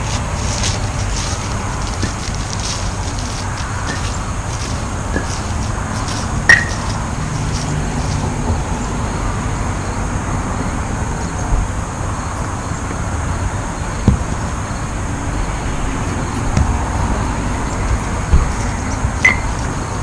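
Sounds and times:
background traffic hiss: 0.0s - 20.0s
wooden game pieces clacking: 0.5s - 8.2s
dull thud: 18.3s - 18.6s.

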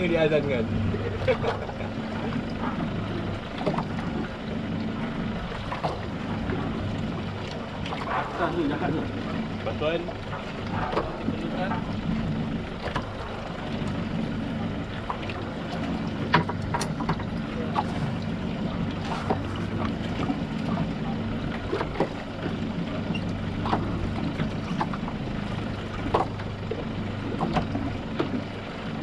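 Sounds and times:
boat engine idling: 0.0s - 29.0s
water noise: 0.0s - 29.0s
wind: 0.0s - 29.0s
sharp clicks and knocks: 16.2s - 17.9s.

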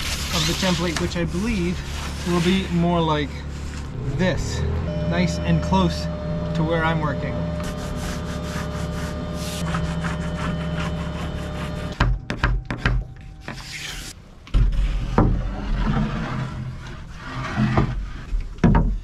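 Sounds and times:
wood scraping on workbench: 0.0s - 2.8s, 14.7s - 18.4s.

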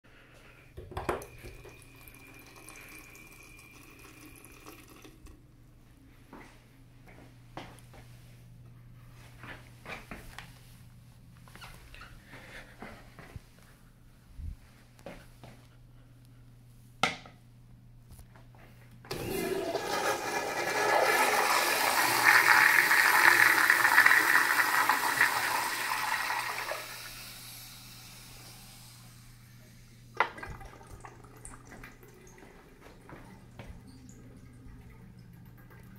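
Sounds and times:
toilet flush water rushing: 1.1s - 5.2s, 19.1s - 29.0s, 30.2s - 35.9s
water trickling: 1.1s - 5.4s, 30.2s - 35.9s.

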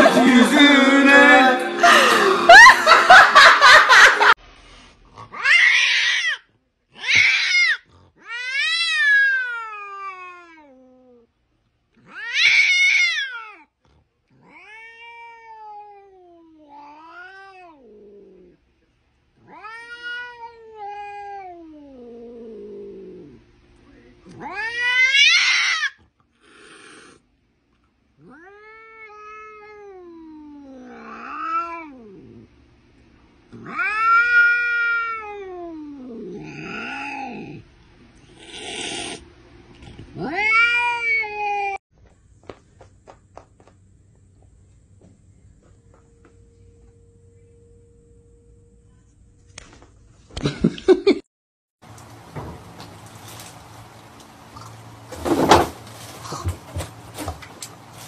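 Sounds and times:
cat meowing: 5.3s - 11.2s, 14.3s - 17.9s, 19.4s - 22.2s, 24.3s - 26.0s, 28.2s - 32.2s, 33.6s - 37.6s, 40.2s - 41.8s.

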